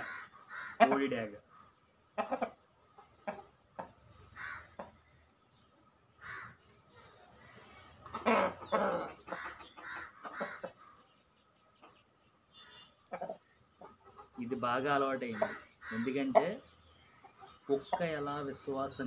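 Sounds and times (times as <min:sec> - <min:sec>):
rooster calling and clucking: 0:00.0 - 0:01.1, 0:02.2 - 0:05.0, 0:06.3 - 0:11.1, 0:12.6 - 0:14.6.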